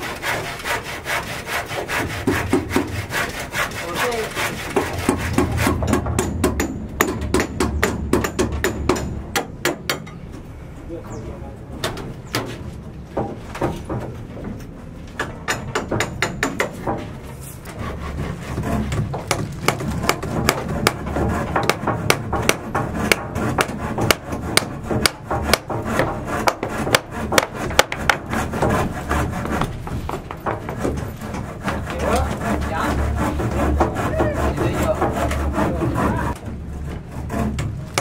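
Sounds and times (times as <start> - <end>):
knocks and rubbing on wood: 0.0 - 10.1, 11.8 - 38.0
low rumble: 4.4 - 9.4.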